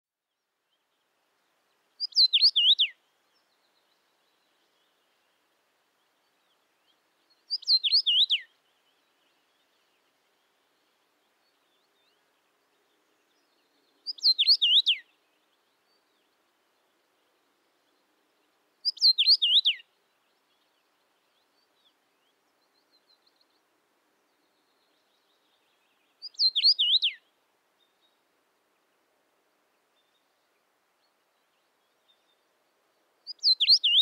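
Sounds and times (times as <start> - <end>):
rosefinch whistled song: 2.0 - 4.9, 6.4 - 8.5, 13.3 - 15.1, 18.8 - 20.6, 24.4 - 28.2, 33.2 - 34.0.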